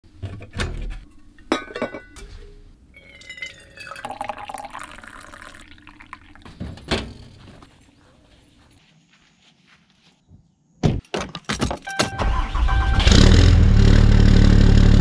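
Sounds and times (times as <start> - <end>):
metal knocks and clinks: 1.1 - 2.3
coffee pouring into tumbler: 3.0 - 6.5.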